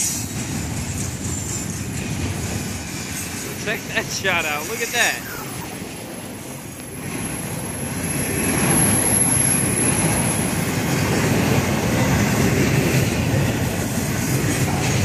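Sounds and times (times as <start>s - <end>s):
freight train wheels rumbling: 0.0s - 15.0s
thin high whine: 3.5s - 6.1s.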